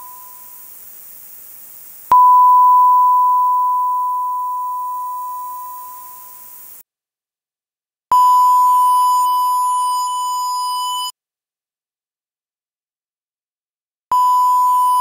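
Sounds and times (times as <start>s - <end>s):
sine wave test beep: 0.0s - 0.8s, 2.1s - 6.8s, 8.1s - 11.2s, 14.1s - 15.0s
high hiss: 0.0s - 2.2s, 4.6s - 6.8s.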